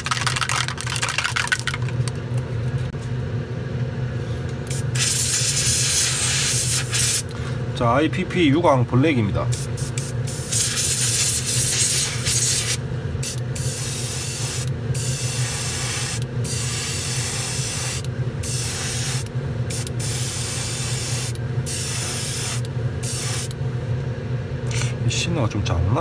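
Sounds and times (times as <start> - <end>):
steady low hum: 0.0 - 26.0
airbrush hissing bursts: 4.7 - 7.2, 9.5 - 23.5.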